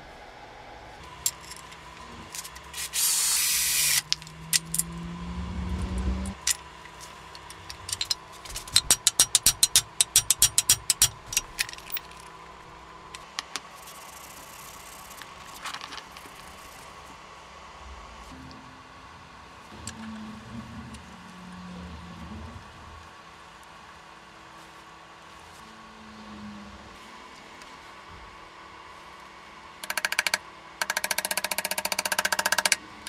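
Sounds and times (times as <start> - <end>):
rising hum: 0.0 - 9.0, 16.4 - 23.4
sharp taps on metal: 8.8 - 11.2.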